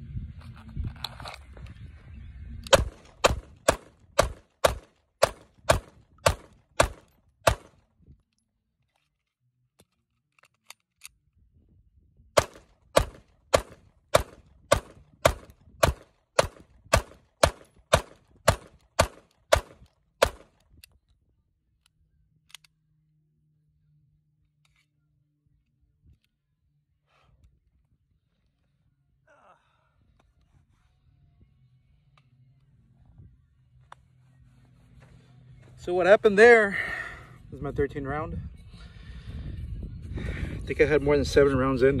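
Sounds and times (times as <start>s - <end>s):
pistol firing rapidly: 2.7s - 7.8s, 12.4s - 20.5s.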